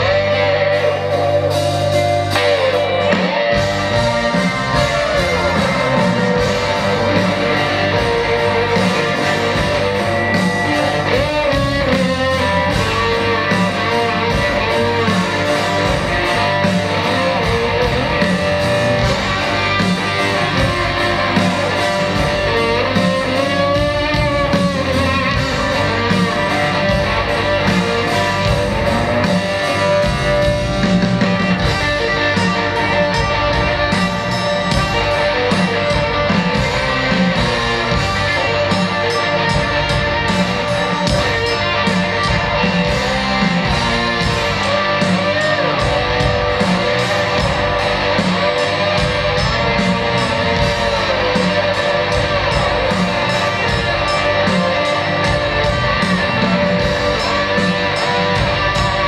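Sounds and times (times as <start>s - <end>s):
electric guitar lead lines: 0.0s - 59.0s
live rock band playing: 0.0s - 59.0s.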